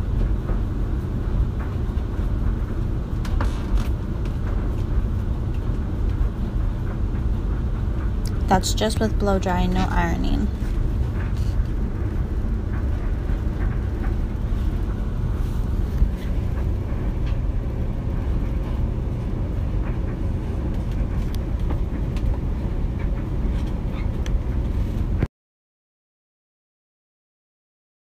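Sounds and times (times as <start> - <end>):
low rumbling noise: 0.0 - 25.3.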